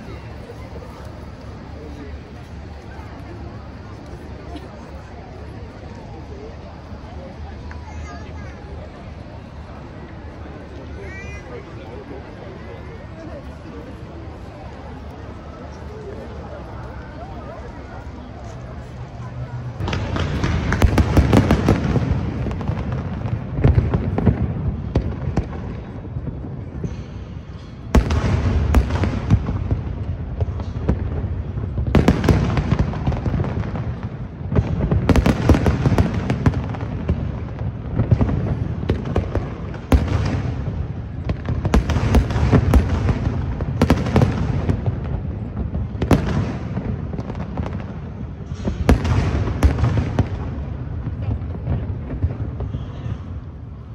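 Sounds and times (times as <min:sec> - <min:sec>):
firework crackling: 0:00.0 - 0:53.9
firework booms: 0:19.8 - 0:53.4.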